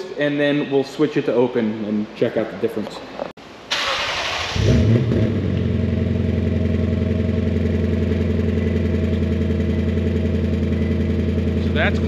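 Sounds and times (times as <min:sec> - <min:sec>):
car engine starting and idling: 0:03.7 - 0:12.0.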